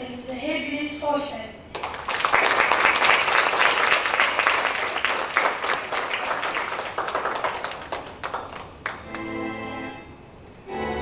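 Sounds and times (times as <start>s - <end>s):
audience applauding: 1.7s - 9.4s.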